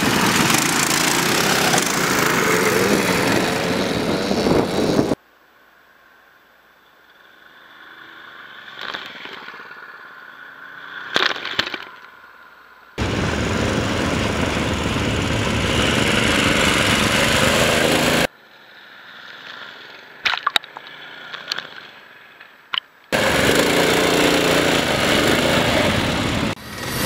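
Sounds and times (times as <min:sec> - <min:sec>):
small engine running hard: 0:00.0 - 0:05.2, 0:13.0 - 0:18.3, 0:23.1 - 0:27.0.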